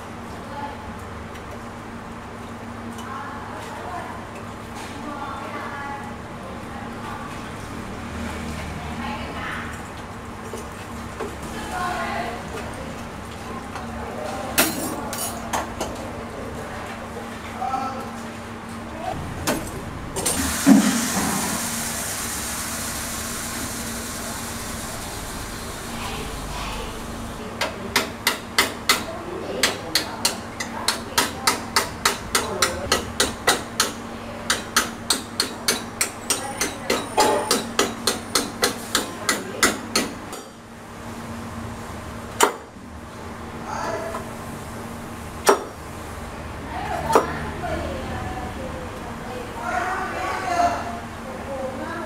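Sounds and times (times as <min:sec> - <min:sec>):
hammer striking metal: 0:27.6 - 0:40.5.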